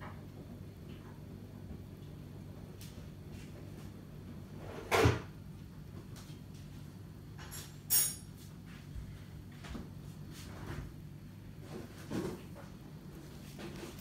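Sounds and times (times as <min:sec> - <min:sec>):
bright metallic clink: 0:07.5 - 0:08.3.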